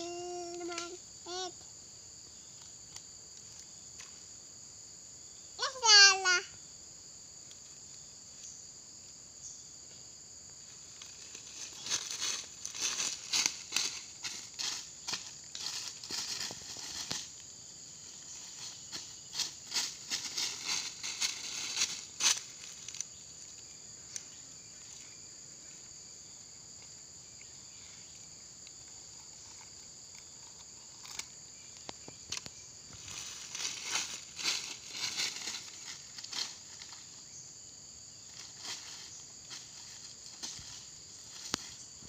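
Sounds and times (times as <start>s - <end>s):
high insect drone: 0.0s - 42.0s
footsteps crunching dry leaves: 11.0s - 17.4s, 18.2s - 23.0s, 32.9s - 37.1s.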